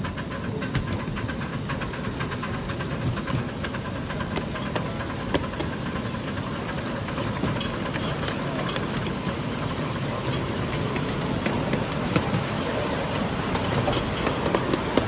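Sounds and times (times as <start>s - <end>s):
wheels rumbling on rails: 0.0s - 15.0s.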